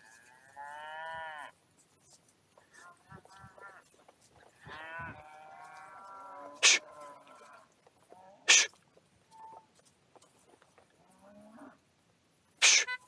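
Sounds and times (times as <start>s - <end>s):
cow mooing: 4.6s - 7.6s
horse snorting: 6.6s - 6.9s, 8.5s - 8.8s.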